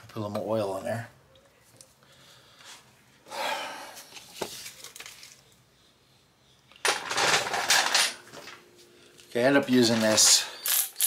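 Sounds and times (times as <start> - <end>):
metal tools clattering: 6.8 - 8.6, 9.6 - 11.0.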